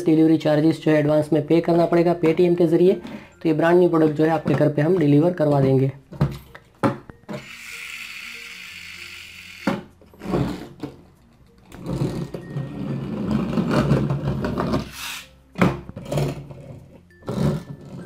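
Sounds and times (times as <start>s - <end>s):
toy car spring motors whirring: 7.3s - 9.9s, 14.8s - 15.3s
toy wheels on cardboard: 7.3s - 11.0s, 11.7s - 15.3s.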